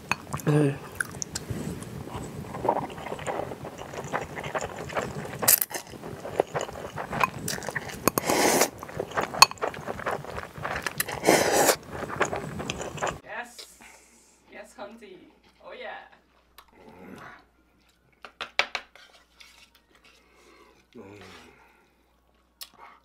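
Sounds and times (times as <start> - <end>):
slurping liquid: 0.0 - 13.2
wet chewing and mouth clicks: 0.0 - 13.2, 22.6 - 22.9.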